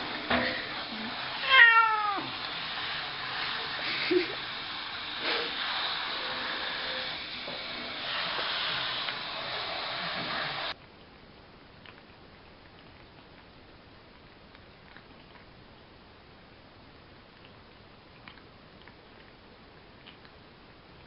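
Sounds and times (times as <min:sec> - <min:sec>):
cat meowing: 0:01.4 - 0:02.4
hair dryer blowing: 0:02.2 - 0:10.7.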